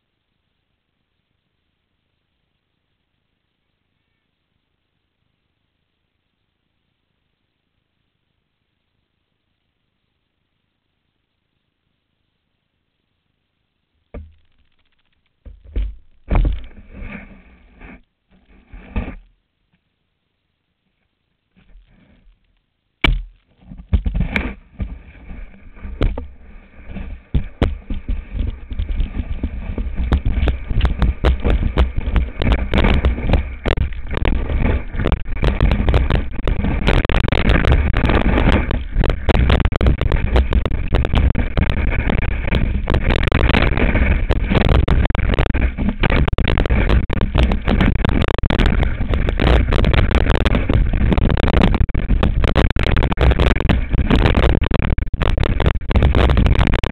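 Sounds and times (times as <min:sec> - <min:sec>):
knocks: 0:14.1 - 0:14.7, 0:15.4 - 0:16.9
skis scraping over snow: 0:16.4 - 0:19.2, 0:24.1 - 0:56.9
wind rushing across microphone: 0:24.3 - 0:56.9.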